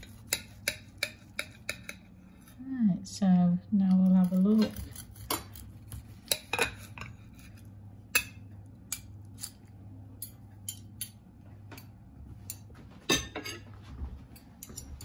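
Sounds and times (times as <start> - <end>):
cutlery clicking on a plate: 0.0 - 2.1, 10.2 - 11.2.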